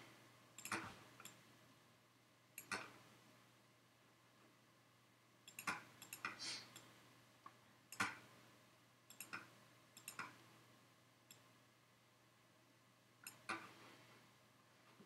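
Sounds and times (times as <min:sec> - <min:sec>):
mouse and keyboard clicks: 0:00.6 - 0:01.4, 0:02.6 - 0:03.0, 0:05.5 - 0:06.9, 0:07.9 - 0:08.2, 0:09.1 - 0:10.4, 0:13.2 - 0:13.8.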